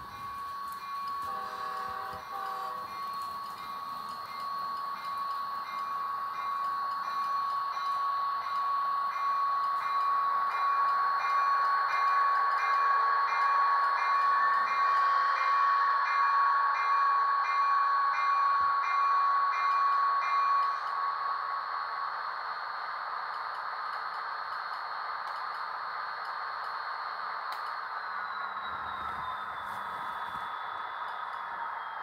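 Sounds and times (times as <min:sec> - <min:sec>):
diesel locomotive sound from speaker: 0:00.0 - 0:32.0.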